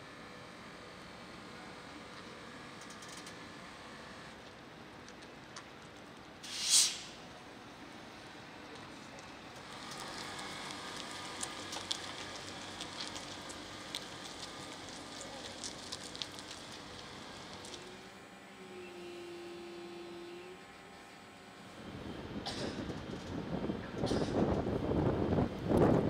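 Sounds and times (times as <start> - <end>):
tyres rolling over gritty asphalt: 8.8 - 18.2.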